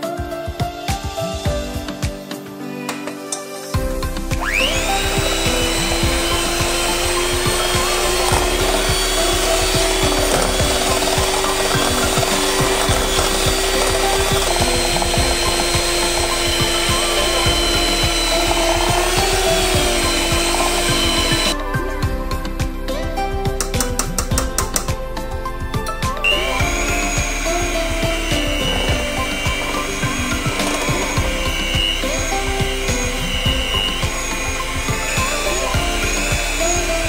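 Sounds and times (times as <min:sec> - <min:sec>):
electric hand mixer whining: 0:04.0 - 0:21.6, 0:26.2 - 0:37.0.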